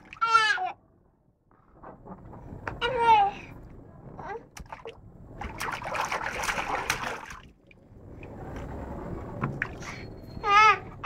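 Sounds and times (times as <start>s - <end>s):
water sloshing: 4.5s - 7.9s
water splashing: 4.6s - 7.8s.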